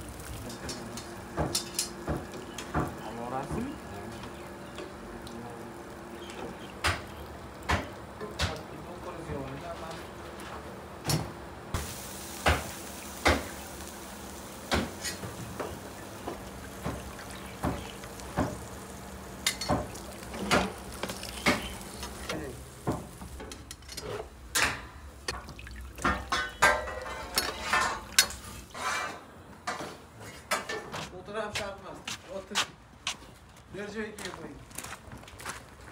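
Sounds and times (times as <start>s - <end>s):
pans and ladle clanking on pot: 19.4s - 21.7s, 22.8s - 31.1s
liquid sloshing: 25.3s - 28.7s.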